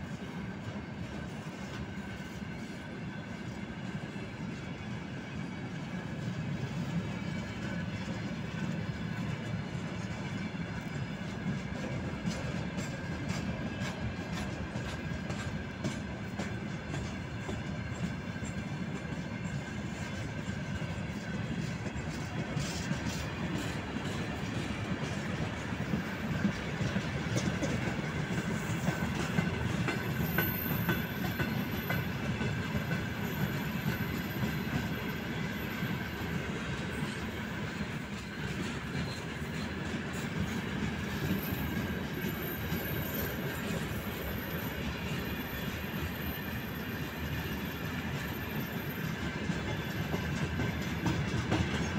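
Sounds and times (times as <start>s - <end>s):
steel wheels rumbling on rail: 0.0s - 51.9s
high wheel squeal: 41.2s - 51.0s.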